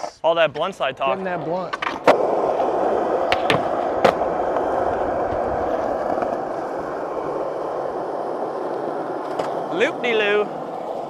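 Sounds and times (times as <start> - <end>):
skateboard wheels rolling: 0.0 - 11.0.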